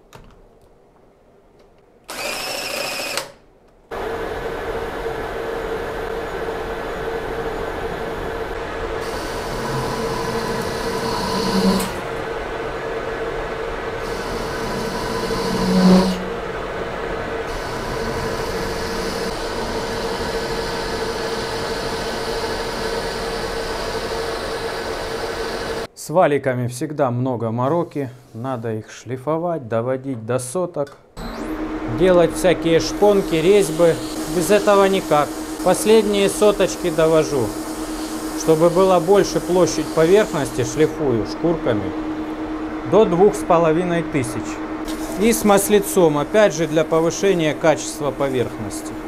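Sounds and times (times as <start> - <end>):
metal lathe humming: 2.1 - 3.3, 3.9 - 25.9, 31.2 - 49.0
cordless drill whining: 2.1 - 3.4, 9.0 - 12.2, 14.0 - 16.2, 17.5 - 25.9.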